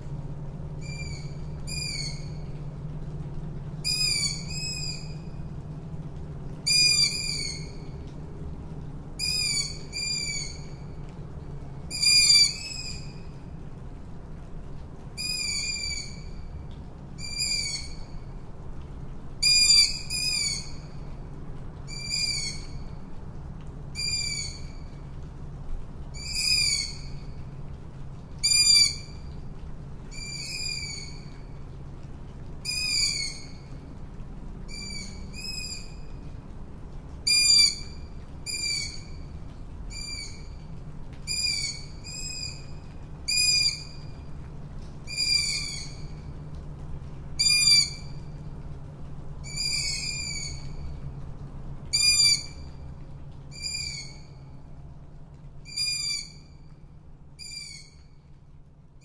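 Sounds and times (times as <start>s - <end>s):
owl calling: 55.7s - 56.4s, 57.4s - 58.0s.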